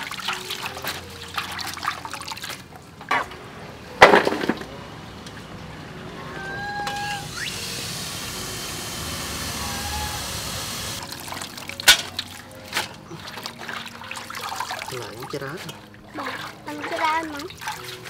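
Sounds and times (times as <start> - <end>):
small water splashes: 0.0 - 3.4, 11.0 - 18.0
handling wet vegetables and bowls: 0.0 - 5.6, 11.0 - 18.0.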